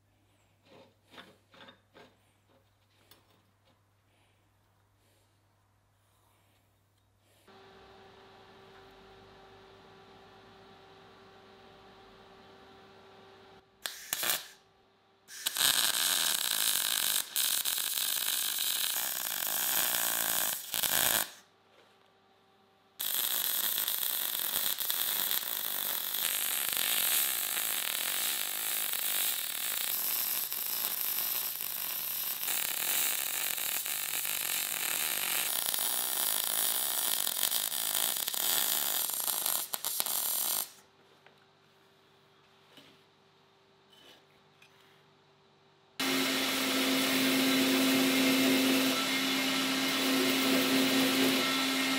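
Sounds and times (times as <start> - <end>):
welding arc crackling and hissing: 13.8 - 14.6, 15.3 - 21.4, 23.0 - 40.8, 46.0 - 51.9.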